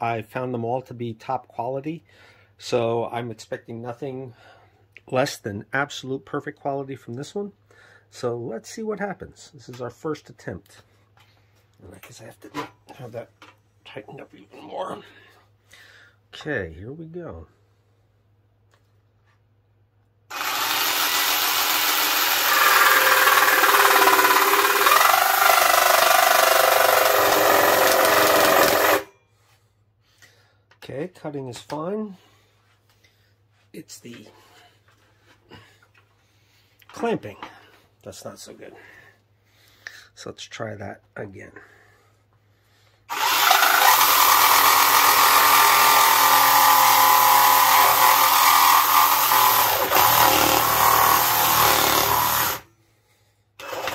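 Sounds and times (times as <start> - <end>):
cordless jigsaw cutting wood: 20.3 - 29.1, 43.1 - 52.7, 53.6 - 53.9.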